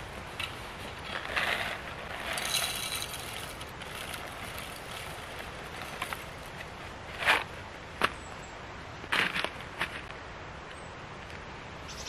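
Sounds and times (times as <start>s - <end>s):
coffee beans pouring rattle: 2.3s - 4.2s.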